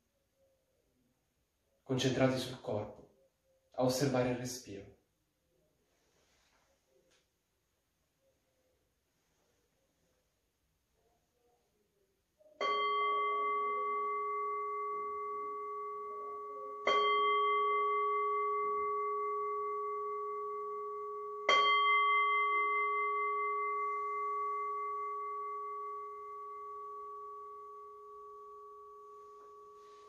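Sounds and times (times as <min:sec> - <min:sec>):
metal bowl bell ringing: 0:12.5 - 0:30.0.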